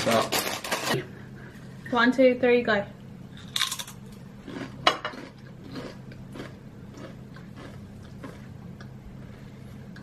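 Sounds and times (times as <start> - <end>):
corn chips crunching: 3.5 - 8.5.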